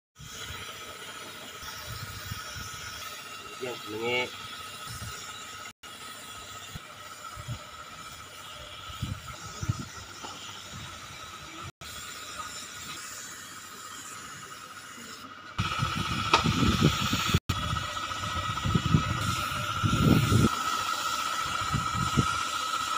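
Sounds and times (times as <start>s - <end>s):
spray gun hissing: 8.0s - 22.9s.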